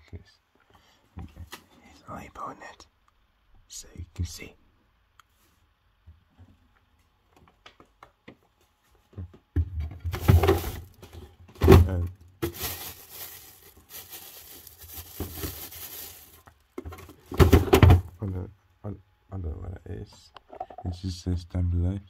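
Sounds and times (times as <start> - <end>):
plastic drawer knocks and clatter: 9.5 - 10.8, 16.8 - 18.1
plastic bag rustling: 10.1 - 18.1.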